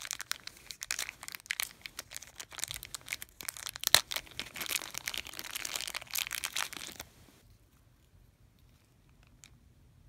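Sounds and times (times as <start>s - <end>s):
plastic packaging crinkling: 0.0s - 7.3s.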